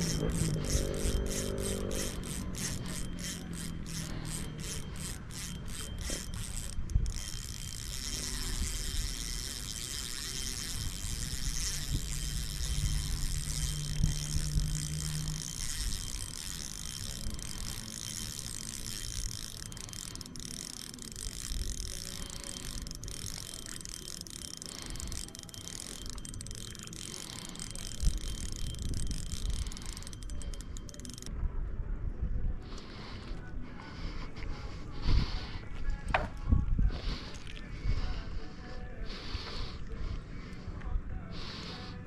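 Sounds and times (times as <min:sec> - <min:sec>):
fishing reel gears ticking: 0:00.0 - 0:31.3.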